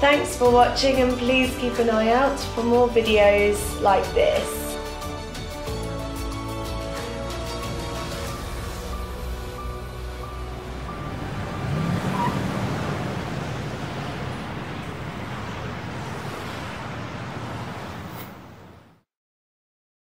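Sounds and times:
road noise: 0:00.0 - 0:19.1
car engine rising in pitch: 0:07.6 - 0:19.0.

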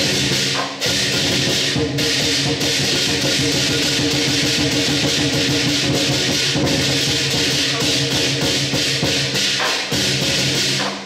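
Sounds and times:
big drum beating fast rhythm: 0:00.0 - 0:11.0
cymbals clashing: 0:00.0 - 0:11.0.

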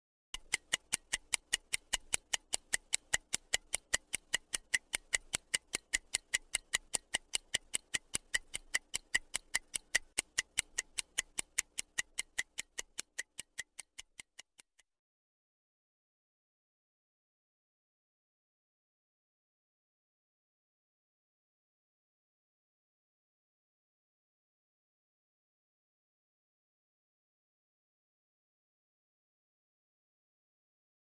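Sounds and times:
stopwatch ticking: 0:00.4 - 0:14.9.

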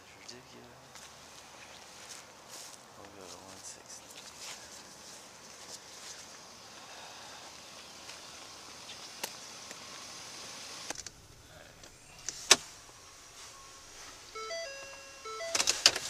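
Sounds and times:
faint outdoor clicks: 0:07.8 - 0:10.0, 0:10.8 - 0:11.2
truck door shutting: 0:11.8 - 0:12.9
stepped electronic tones: 0:12.7 - 0:16.0.

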